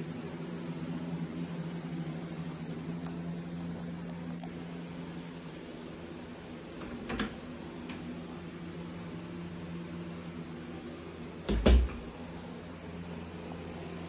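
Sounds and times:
steady low hum: 0.0s - 14.0s
door shutting thump: 11.4s - 12.2s
door latch clicking: 11.5s - 12.1s.

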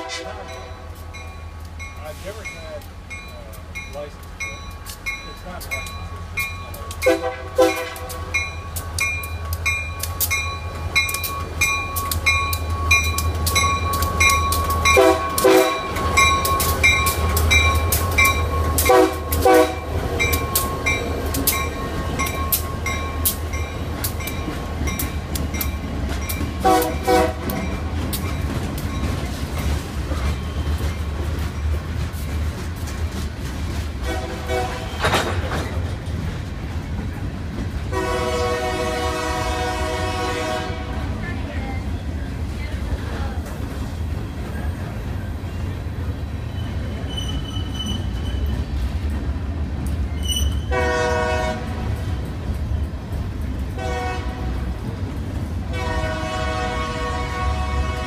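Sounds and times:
train horn blasts: 0.0s - 1.0s, 6.9s - 8.4s, 14.8s - 16.2s, 18.8s - 20.0s, 26.6s - 27.7s, 34.0s - 35.2s, 37.9s - 41.1s, 50.6s - 52.0s, 53.8s - 54.7s, 55.6s - 58.0s
diesel locomotive engine rumble: 0.0s - 58.0s
locomotive bell ringing: 0.4s - 31.8s
train wheels clicking over rail joints: 0.4s - 38.4s.

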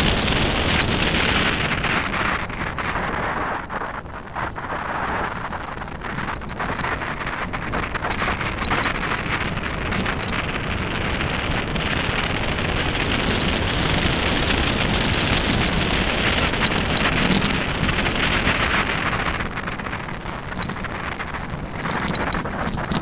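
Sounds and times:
bike tyres crunching on gravel: 0.0s - 23.0s
wind on microphone: 0.0s - 23.0s.

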